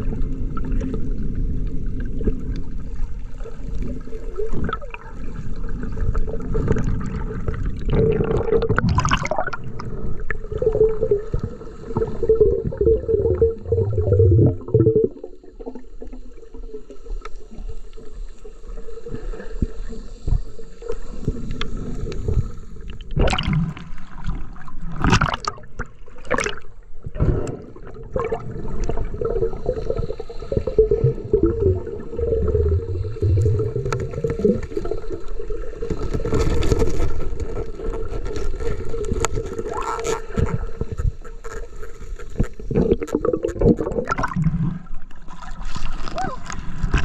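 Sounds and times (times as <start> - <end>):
water rushing and gurgling: 0.0 - 16.7, 21.0 - 36.6.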